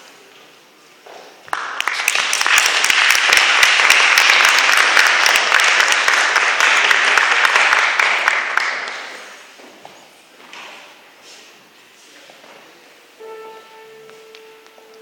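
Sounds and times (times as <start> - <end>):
audience applause: 1.5 - 9.3.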